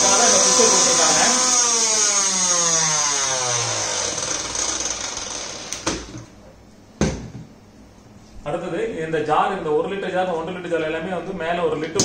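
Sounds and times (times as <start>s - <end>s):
motor whine spinning down: 0.0s - 6.1s.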